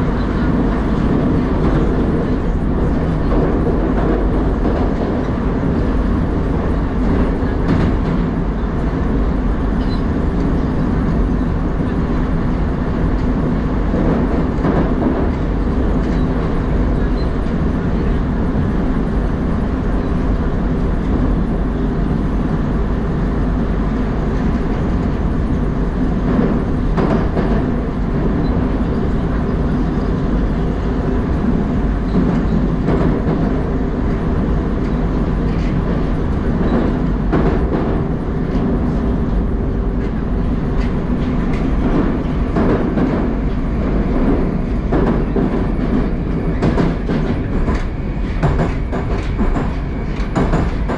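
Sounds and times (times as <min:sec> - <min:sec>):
rumble of wheels on rails: 0:00.0 - 0:50.9
clacks over rail joints: 0:00.1 - 0:08.9, 0:13.0 - 0:18.2, 0:26.1 - 0:30.8, 0:32.0 - 0:50.9.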